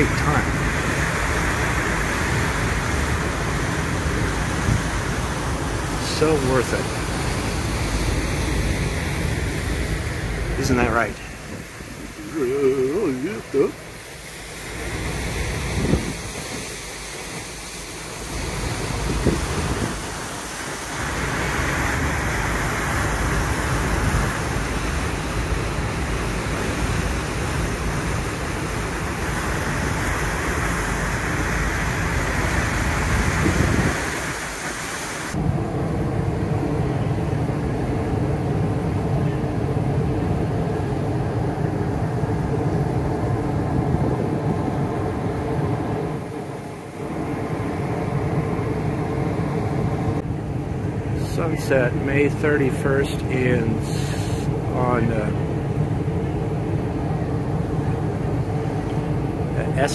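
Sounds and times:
wind rushing: 0.0 - 38.8
engine drone with steady tones: 0.0 - 59.9
ship engines rumbling: 0.0 - 59.9
ship's wake rushing: 0.0 - 59.9.

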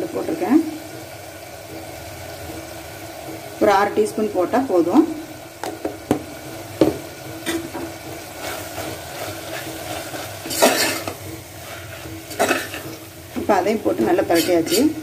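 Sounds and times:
meat sizzling: 0.0 - 15.0
spatula scraping pot: 7.3 - 15.0.

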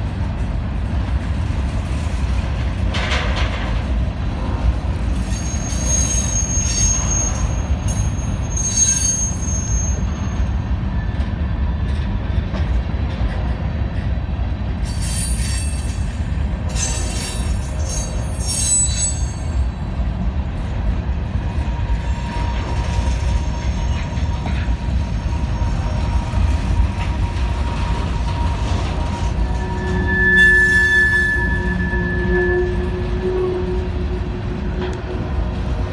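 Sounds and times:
freight train rolling rumble: 0.0 - 35.9
high-pitched wheel squeal: 4.9 - 10.6, 14.9 - 19.9, 21.9 - 35.9.

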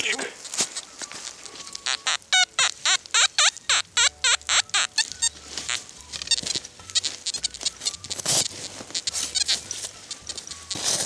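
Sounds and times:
metal detector warbling tones: 1.8 - 11.0
shovel digging soil: 6.4 - 11.0.

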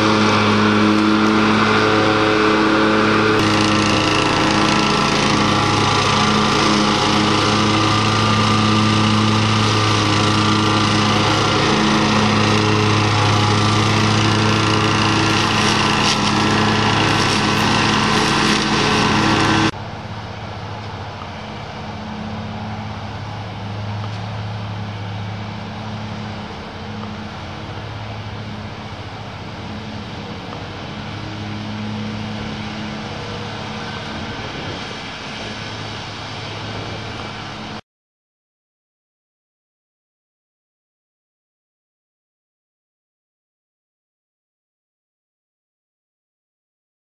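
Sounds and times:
string trimmer cutting grass: 0.0 - 19.8
riding mower engine running: 0.0 - 37.8.

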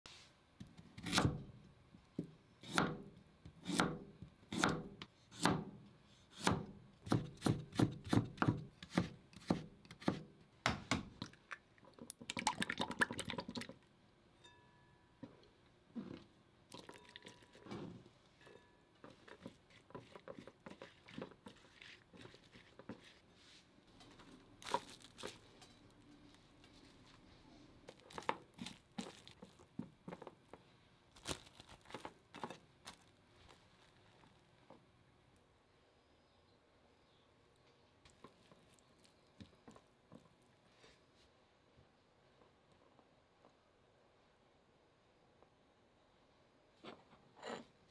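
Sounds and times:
knife cutting carrot on board: 0.6 - 1.4, 2.6 - 5.7, 6.3 - 10.3
chopsticks beating egg in bowl: 19.1 - 23.2
plastic cling film crinkle: 24.3 - 27.2, 27.8 - 30.4, 31.1 - 34.4.

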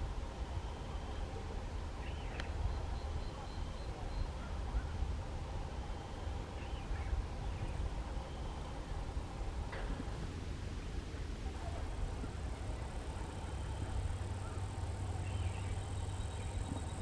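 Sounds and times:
bird chirps: 2.0 - 5.0, 13.3 - 17.0.

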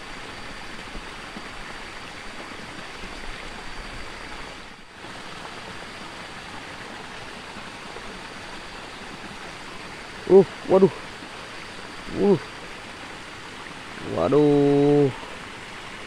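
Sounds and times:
running water in a stream: 0.0 - 16.0.

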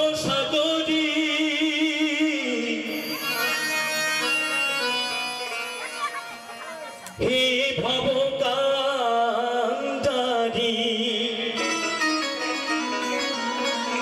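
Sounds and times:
man singing with vibrato: 0.0 - 14.0
instrumental accompaniment: 2.8 - 7.8, 11.4 - 14.0.

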